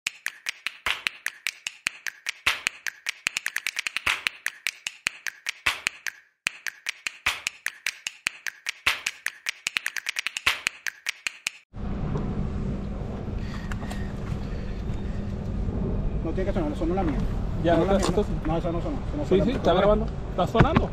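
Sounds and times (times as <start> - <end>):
rapid sharp clicks: 0.0 - 11.7
low hum: 11.8 - 17.7.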